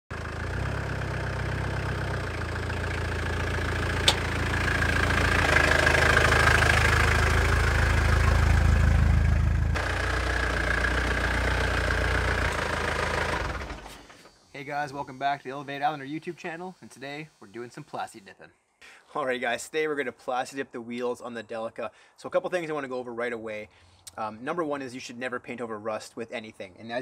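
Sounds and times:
van engine running: 0.1s - 14.4s.

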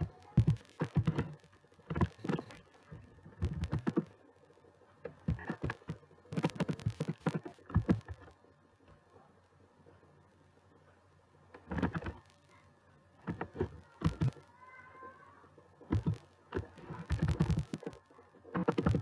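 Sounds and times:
keyboard keys clicking: 5.1s - 8.2s, 13.3s - 14.4s, 18.6s - 19.0s.

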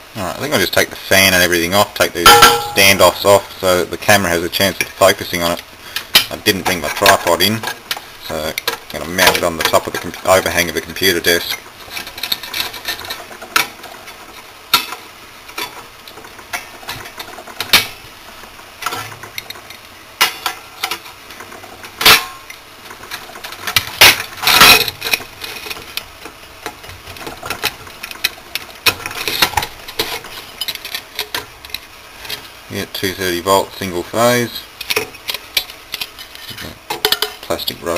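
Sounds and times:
clicks and clinks of metal and plastic: 36.9s - 37.5s.

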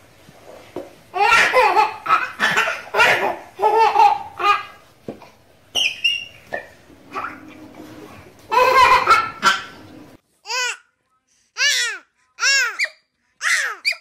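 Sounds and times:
baby laughing: 1.2s - 4.8s, 8.5s - 9.8s.

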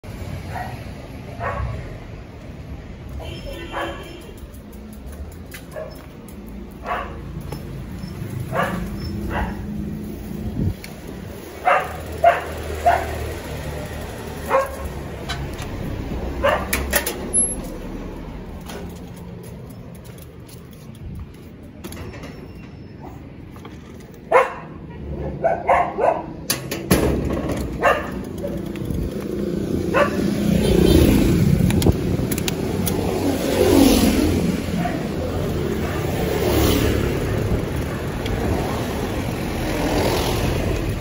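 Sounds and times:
low traffic rumble: 0.0s - 41.0s
dog barking: 0.5s - 0.8s, 1.4s - 1.8s, 3.5s - 4.1s, 6.8s - 7.2s, 8.5s - 9.7s, 11.6s - 13.2s, 14.4s - 14.9s, 16.4s - 16.7s, 24.3s - 26.4s, 27.8s - 28.6s, 29.9s - 30.3s, 34.8s - 35.3s.

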